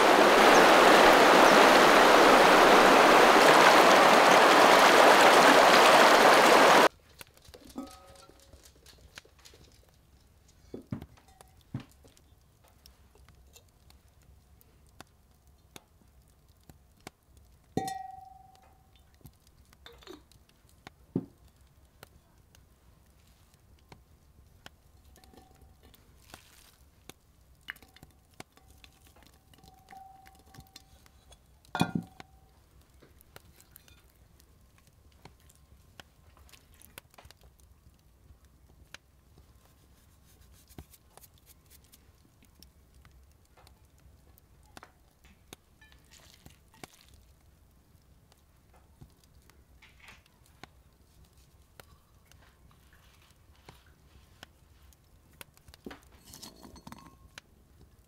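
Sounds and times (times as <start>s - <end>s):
ceramic clinking on ceramic: 17.8s - 18.6s, 29.6s - 32.2s, 56.2s - 57.4s.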